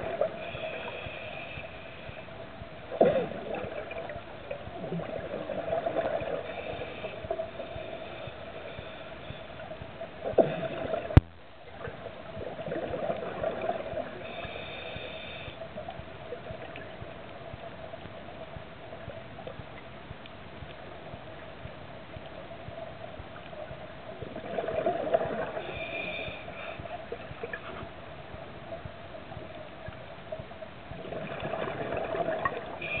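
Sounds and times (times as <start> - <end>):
gurgling exhaled bubbles underwater: 0.0 - 1.4, 2.1 - 19.8, 21.1 - 33.0
steady hum: 0.0 - 33.0.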